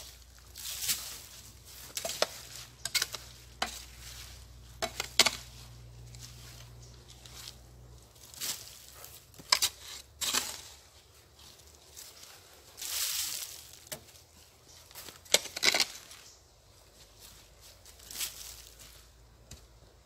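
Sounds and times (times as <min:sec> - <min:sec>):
hoe striking soil: 0:00.0 - 0:07.4, 0:08.4 - 0:11.0, 0:15.0 - 0:16.2
hoe scraping leaf litter: 0:00.0 - 0:16.3.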